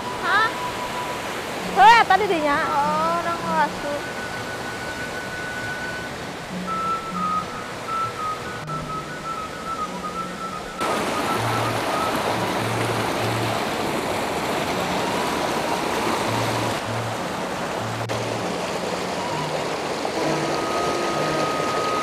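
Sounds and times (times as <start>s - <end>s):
plucked zither notes: 0.0s - 10.9s
bamboo flute tone: 0.0s - 22.0s
river rushing over rocks: 0.0s - 22.0s.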